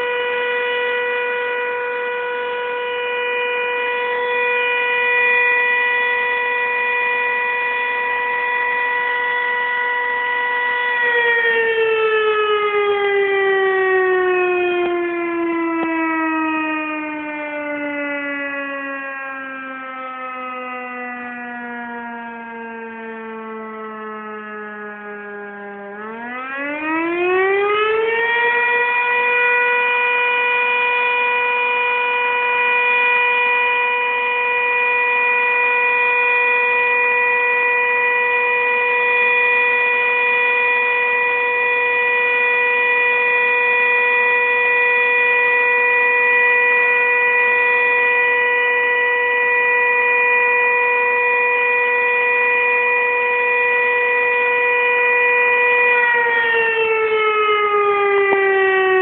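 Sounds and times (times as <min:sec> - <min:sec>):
fire siren wailing: 0:00.0 - 0:59.0.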